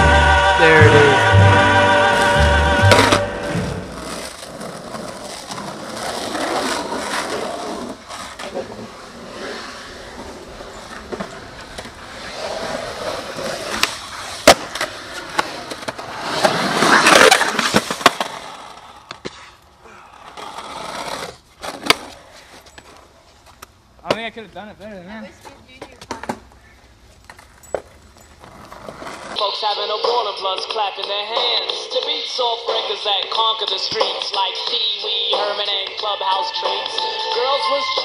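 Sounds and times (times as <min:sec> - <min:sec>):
skateboard wheels rolling on concrete: 0:00.0 - 0:38.0
skateboard cracking: 0:02.9 - 0:23.0, 0:27.2 - 0:38.0
skateboard clacks: 0:30.0 - 0:37.5.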